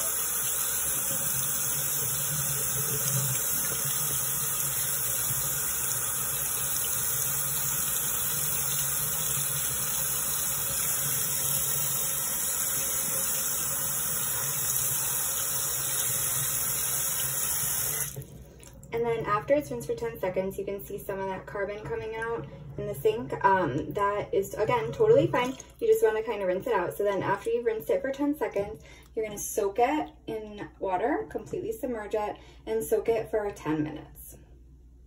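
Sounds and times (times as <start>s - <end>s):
water splashing into basin: 25.0s - 25.8s.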